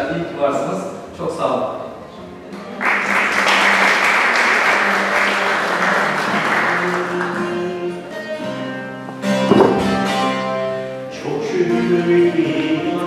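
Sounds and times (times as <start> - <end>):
audience applauding: 2.8 - 7.7
background music: 3.6 - 13.0.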